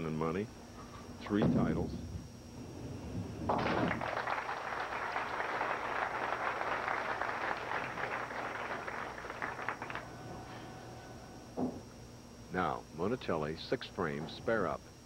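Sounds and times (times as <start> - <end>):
bowling ball crashing into pins: 3.5 - 4.1
crowd applauding: 3.5 - 10.6.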